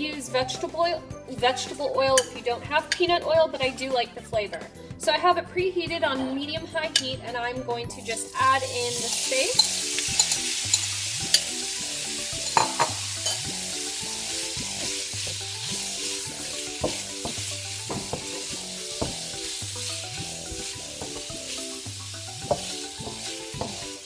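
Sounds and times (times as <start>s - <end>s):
meat sizzling in oil: 7.9s - 24.0s
utensil clicking against pan: 9.1s - 11.5s.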